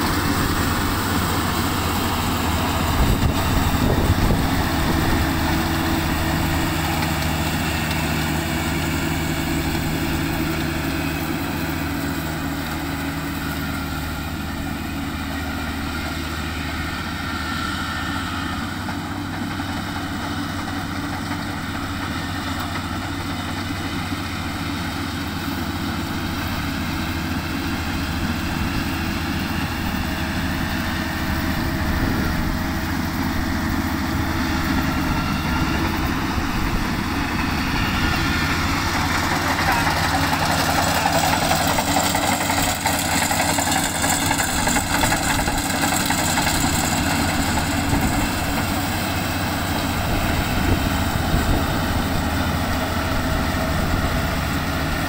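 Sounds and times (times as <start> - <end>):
combine harvester engine hum: 0.0 - 55.0.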